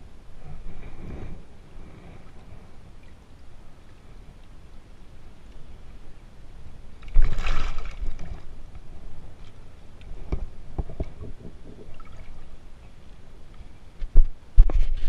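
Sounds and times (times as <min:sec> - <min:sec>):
water splashing: 0:07.0 - 0:08.6, 0:11.0 - 0:12.6.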